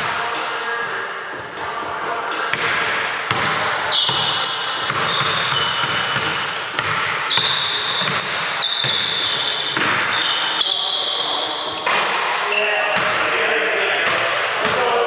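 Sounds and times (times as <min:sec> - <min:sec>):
sneakers squeaking: 0:00.0 - 0:13.2
basketball bouncing on hardwood: 0:02.6 - 0:10.1.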